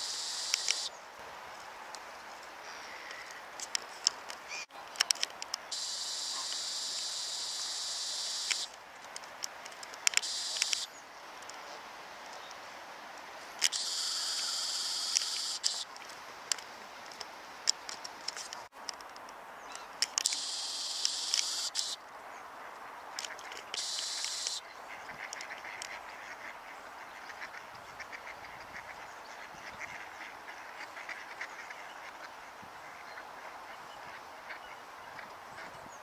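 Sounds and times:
high steady hiss: 0:00.0 - 0:27.0.

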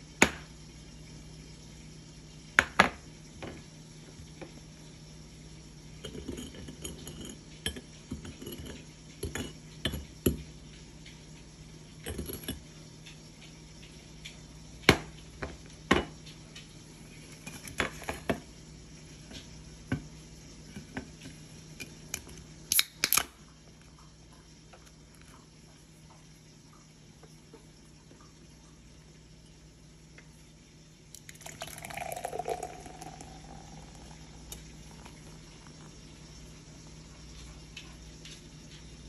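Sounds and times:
glass scraping in sugar: 0:06.0 - 0:09.6
can pull tab cracking open: 0:22.7 - 0:23.3.

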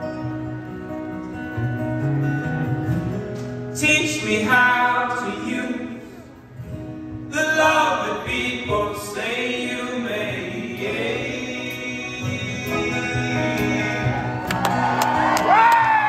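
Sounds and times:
acoustic guitar: 0:00.0 - 0:16.0
men singing together: 0:07.5 - 0:14.5.

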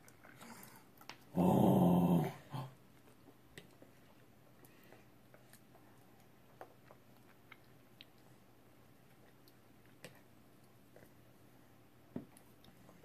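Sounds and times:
low vocal sound: 0:01.3 - 0:02.8.

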